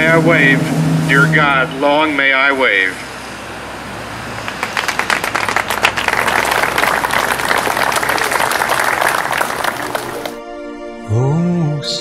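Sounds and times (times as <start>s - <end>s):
crowd applauding: 4.3s - 10.4s.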